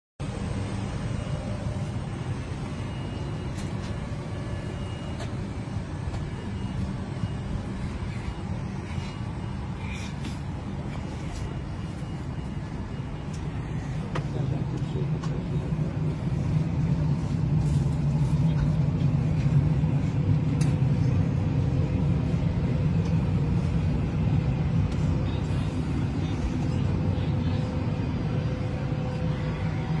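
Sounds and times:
faint steady tone: 0:00.2 - 0:17.9
airliner cabin hum: 0:00.2 - 0:30.0.

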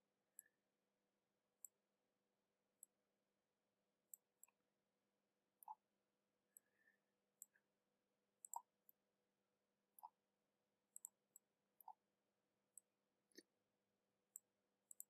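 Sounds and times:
computer mouse clicks: 0:08.4 - 0:08.7, 0:11.0 - 0:12.0, 0:14.3 - 0:15.0.

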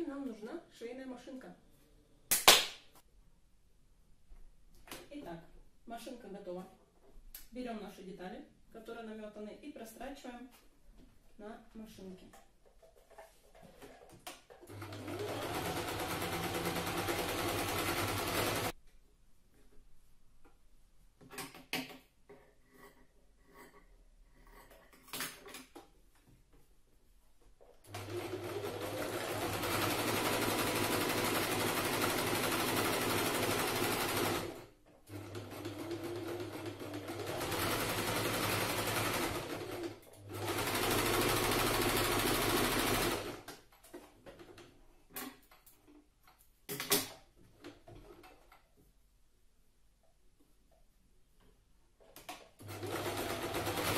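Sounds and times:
sewing machine stitching: 0:14.6 - 0:18.7, 0:27.9 - 0:43.5, 0:52.6 - 0:53.9.

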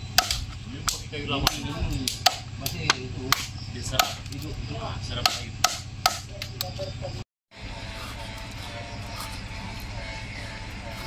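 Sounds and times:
machete chopping raw chicken: 0:00.2 - 0:04.4, 0:05.2 - 0:06.3.

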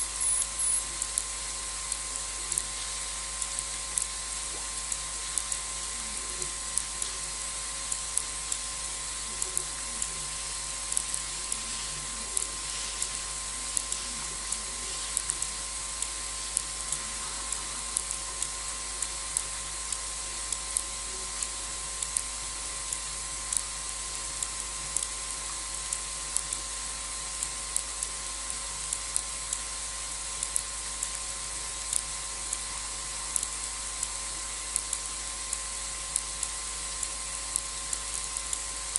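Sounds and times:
sharp high ticks: 0:00.0 - 0:01.3
faint hum: 0:00.0 - 0:38.9
steady hiss: 0:00.0 - 0:38.9.

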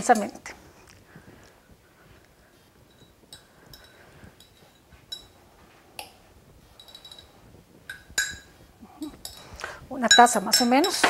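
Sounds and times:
glass bowl clinking: 0:02.9 - 0:05.4, 0:06.8 - 0:08.5, 0:09.2 - 0:11.0.

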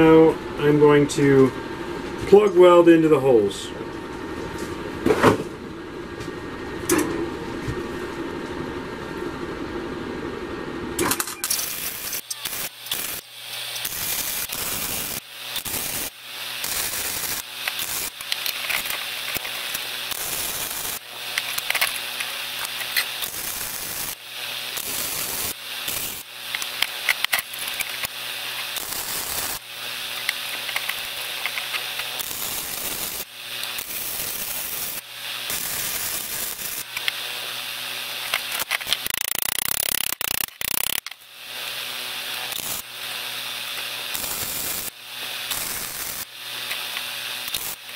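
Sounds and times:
welding arc crackling and hissing: 0:11.4 - 0:47.9.

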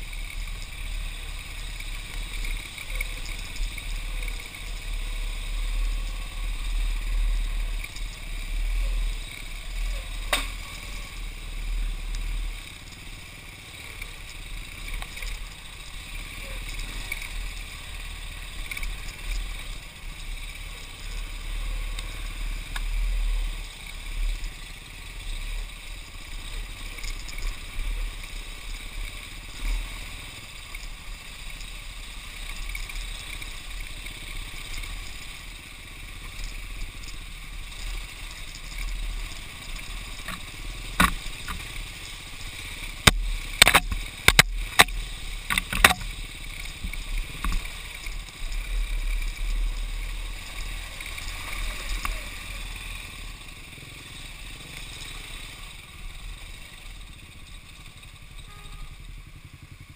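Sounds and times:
motorcycle engine rumble: 0:00.0 - 0:59.9
sharp knocks and clatters: 0:43.0 - 0:46.1.

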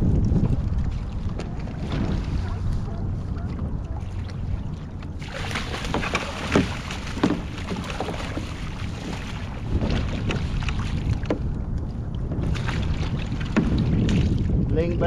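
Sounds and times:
wind noise on microphone: 0:00.0 - 0:15.0
fish splashing: 0:00.8 - 0:11.2.

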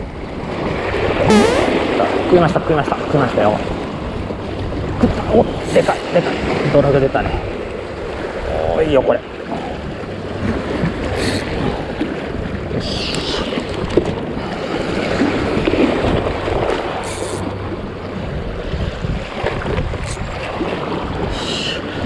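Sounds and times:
waves splashing at shoreline: 0:00.0 - 0:22.0
short high-pitched bursts: 0:01.3 - 0:01.7
wind buffeting microphone: 0:03.0 - 0:22.0.

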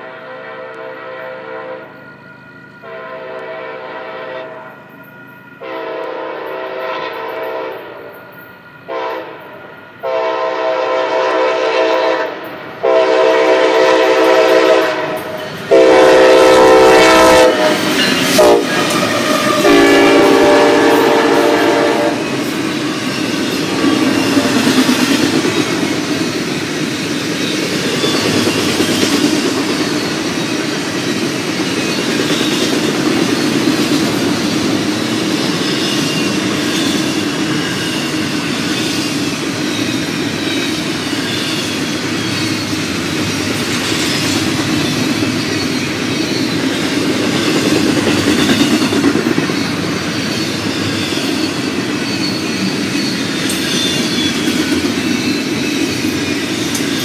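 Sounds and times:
locomotive air horn blasts: 0:00.0 - 0:02.0, 0:02.8 - 0:04.8, 0:05.6 - 0:08.1, 0:08.9 - 0:22.4
train wheels on rails: 0:00.0 - 0:57.0.

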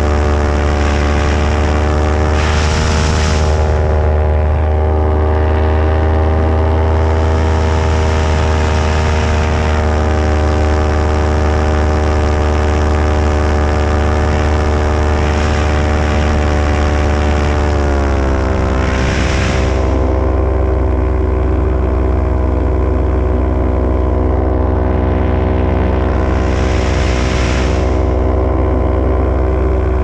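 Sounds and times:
rushing air: 0:00.0 - 0:04.7, 0:06.7 - 0:10.4, 0:13.9 - 0:21.0, 0:25.3 - 0:29.8
paramotor engine running: 0:00.0 - 0:30.0.

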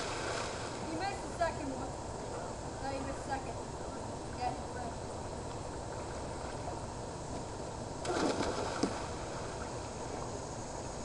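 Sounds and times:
splash in pool water: 0:00.0 - 0:00.8, 0:08.0 - 0:09.6
steady outdoor hiss: 0:00.0 - 0:11.0.

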